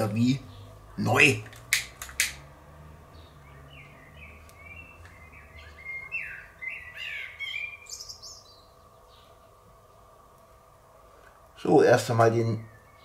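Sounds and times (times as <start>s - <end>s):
bird chirping and singing: 3.1s - 9.6s, 12.3s - 13.0s.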